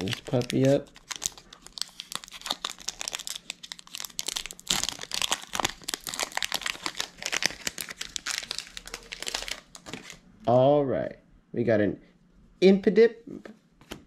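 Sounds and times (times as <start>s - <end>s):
foil wrapper tearing and crinkling: 0.0s - 10.2s.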